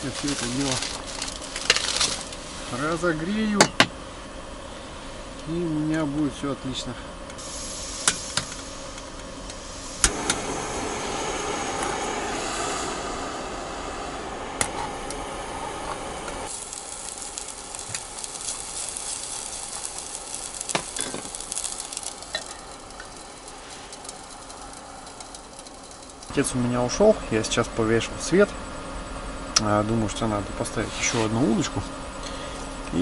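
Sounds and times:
food sizzling in a pan: 0.0s - 2.8s, 7.4s - 26.4s.

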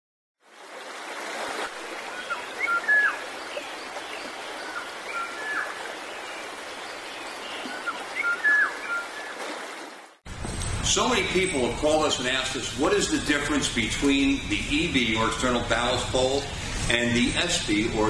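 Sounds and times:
stream water running: 0.4s - 10.2s.

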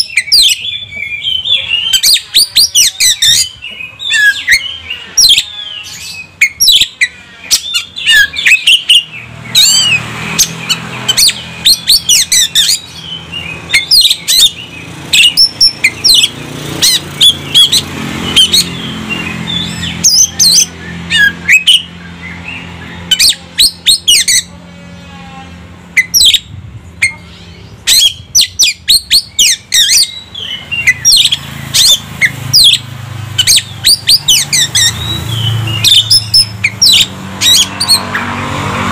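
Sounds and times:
harsh rattling bird chatter: 0.0s - 24.5s, 25.6s - 38.6s
low engine hum: 7.8s - 38.9s
bird singing whistled notes: 17.2s - 24.4s, 26.0s - 38.1s.

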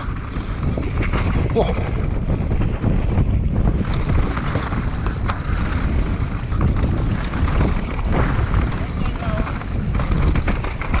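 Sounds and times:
bike clicks and knocks: 0.0s - 11.0s
mountain bike rumble: 0.0s - 11.0s
wind buffeting microphone: 0.0s - 11.0s.

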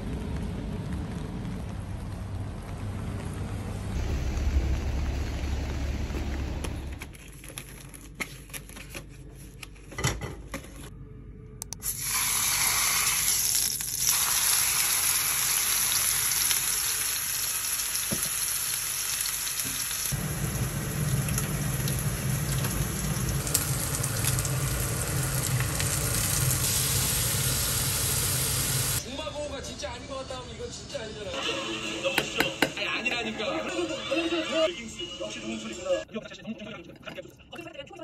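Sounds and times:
low steady hum: 0.0s - 12.0s
steak sizzling in oil: 12.0s - 29.0s.

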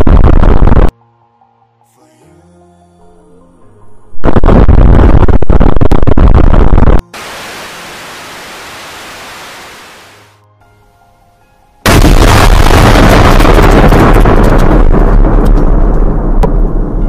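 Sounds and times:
distorted noise burst with cracks: 0.0s - 0.9s, 4.2s - 10.4s, 11.9s - 17.0s
steady hiss: 7.1s - 10.4s.

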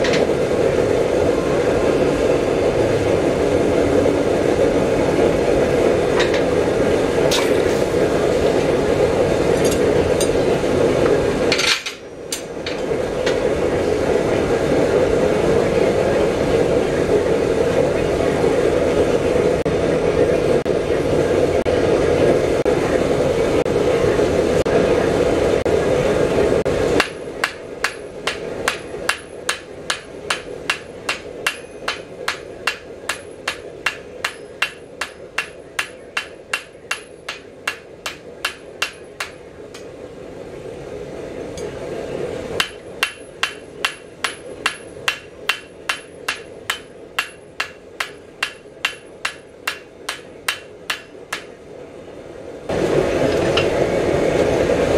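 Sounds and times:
hammer striking steel on anvil: 27.0s - 39.9s, 42.6s - 51.6s.

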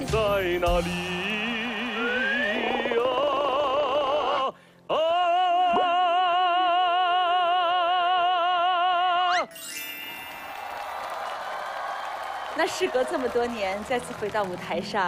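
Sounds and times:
man singing operatically: 0.0s - 9.4s.

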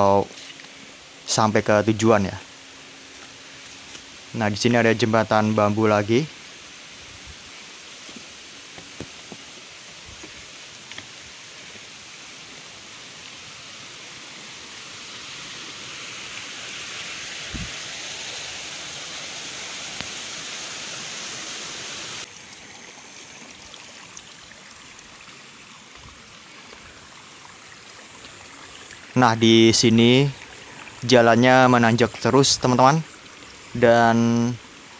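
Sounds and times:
stream water rushing: 0.0s - 34.9s.

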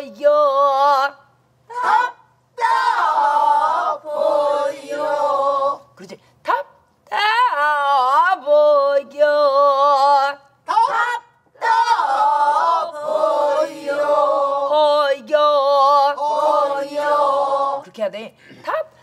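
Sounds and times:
group singing together: 1.7s - 5.9s, 11.6s - 18.0s.

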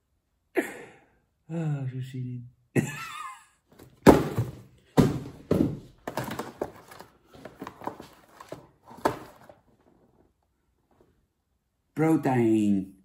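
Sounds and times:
cardboard box thump: 3.8s - 9.6s
cardboard scraping and rustling: 3.8s - 10.3s.

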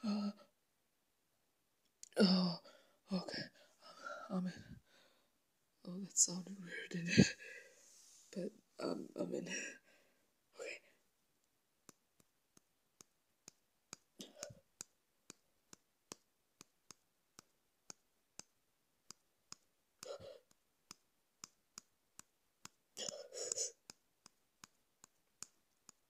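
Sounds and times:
faint regular clicks: 11.4s - 26.0s.

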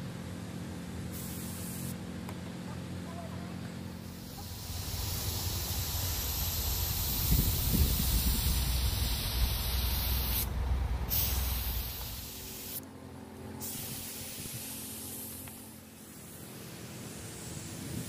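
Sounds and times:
paint spray gun hissing: 1.1s - 2.0s, 3.9s - 12.8s, 13.6s - 18.0s.

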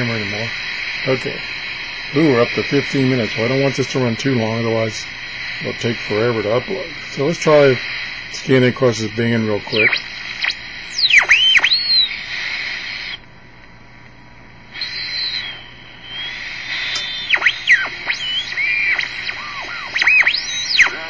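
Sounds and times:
radio static hiss: 0.0s - 21.0s
radio whistles sweeping in pitch: 9.7s - 13.2s, 14.7s - 21.0s.

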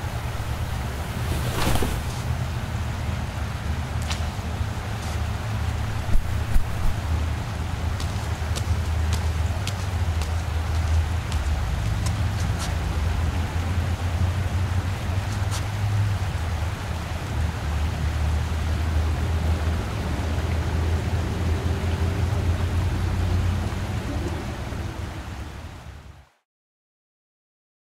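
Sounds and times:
even hiss: 0.0s - 3.2s
low rumble: 0.0s - 3.7s.

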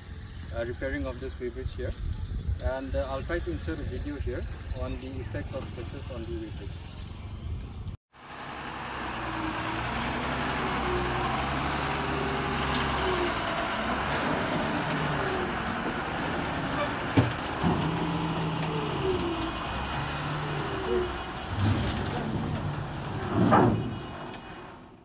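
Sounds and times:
truck engine running: 5.3s - 25.0s.

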